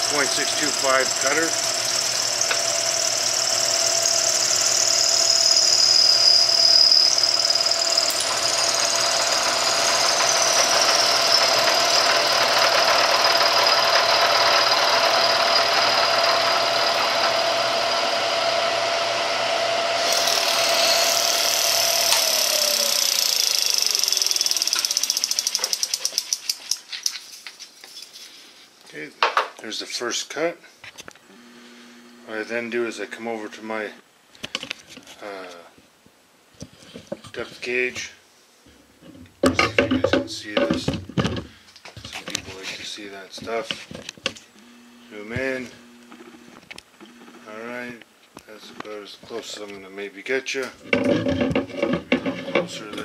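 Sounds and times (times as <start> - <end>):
milling machine cutting metal: 0.0 - 26.2, 50.8 - 53.0
high whine: 31.3 - 34.0.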